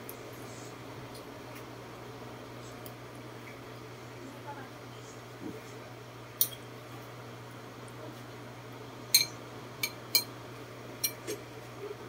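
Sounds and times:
low steady hum: 0.0 - 12.0
spoon clinking on ceramic bowls: 9.2 - 10.3.

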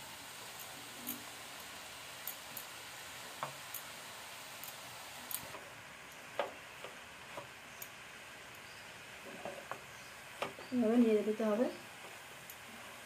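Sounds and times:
faint frying hiss: 0.0 - 13.0.

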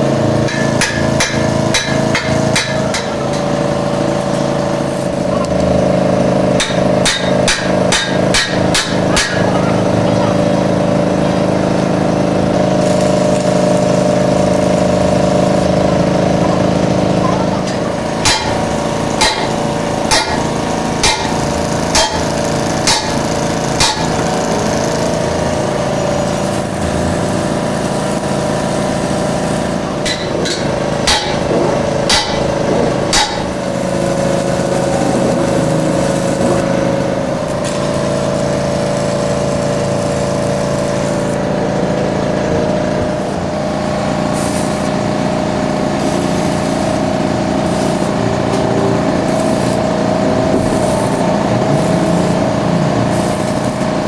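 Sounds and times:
workshop machine humming: 0.0 - 54.0
hammer striking metal: 0.4 - 3.7, 6.6 - 9.5, 17.6 - 24.2, 30.0 - 33.6.

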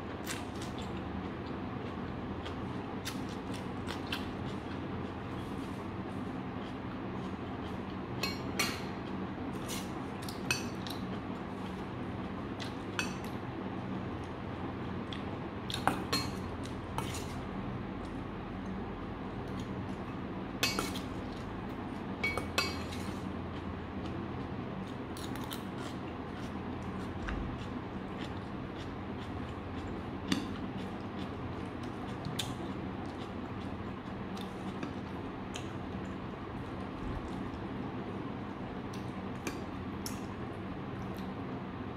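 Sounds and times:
steady low hum: 0.0 - 41.9
person chewing food: 0.2 - 8.2, 22.8 - 37.6.

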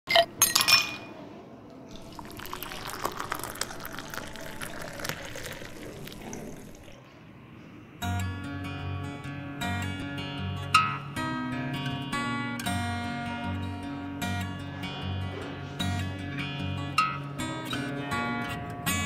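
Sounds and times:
ice cubes clinking in glass: 1.9 - 7.0
soft drink poured over ice: 1.9 - 7.0
acoustic guitar music: 8.0 - 19.0.

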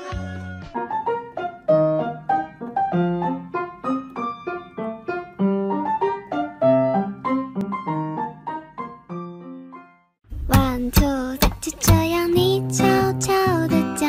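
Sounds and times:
piano melody: 0.0 - 14.0.

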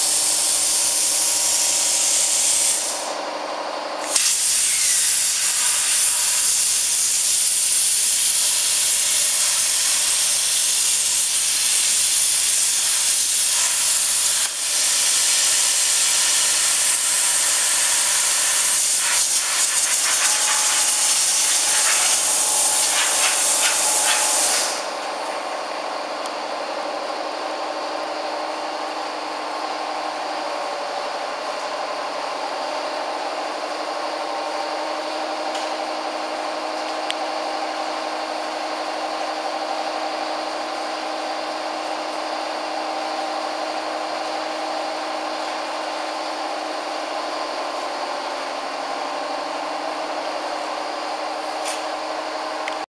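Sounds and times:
cutting torch hissing: 0.0 - 3.3, 4.0 - 26.3.

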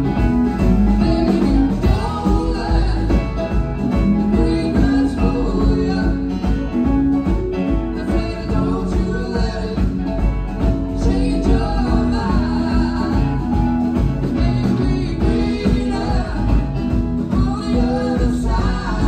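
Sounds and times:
band playing: 0.0 - 19.0
person singing: 0.0 - 19.0.

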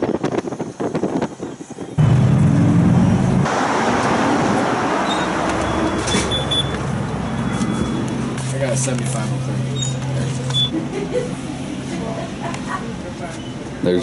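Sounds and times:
broad rushing noise: 0.0 - 10.5
car engine hum: 2.0 - 11.8.

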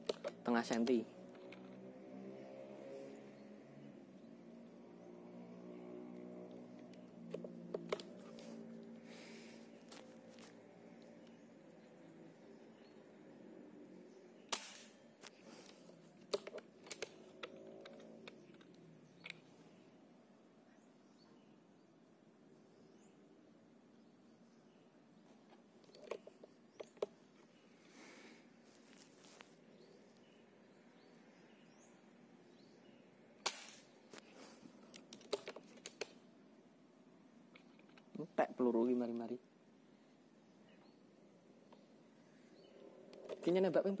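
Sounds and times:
air rifle shot: 14.5 - 15.0, 33.4 - 34.0
rifle metallic clicks: 14.5 - 15.4, 16.3 - 19.4.

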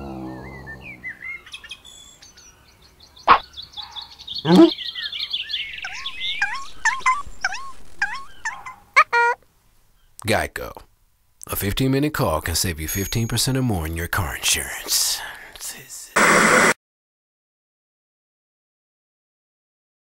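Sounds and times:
birds chirping: 0.0 - 10.8, 12.4 - 15.9.

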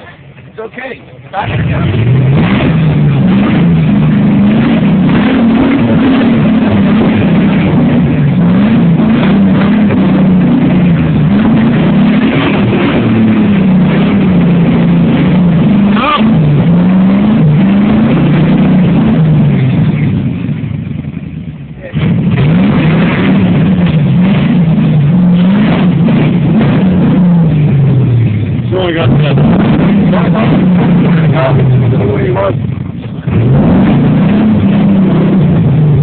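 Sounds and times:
engine revving hard: 1.3 - 20.8, 21.8 - 36.0.

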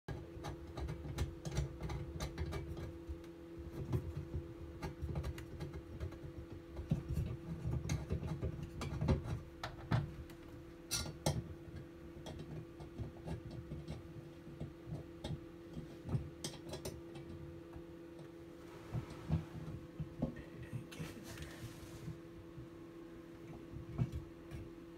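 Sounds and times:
small clicks and taps: 0.1 - 18.4
steady hum: 14.3 - 24.9.

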